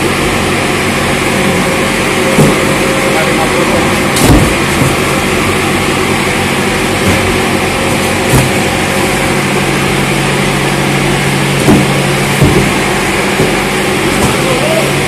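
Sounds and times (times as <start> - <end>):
machine humming: 0.0 - 15.0
cardboard cartons knocking: 2.3 - 2.8, 4.2 - 5.2, 7.0 - 8.8, 11.6 - 14.6.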